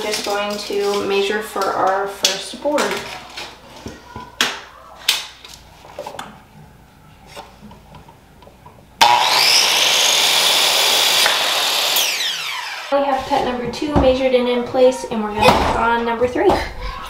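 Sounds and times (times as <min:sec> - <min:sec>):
power saw cutting wood: 0:09.0 - 0:13.0.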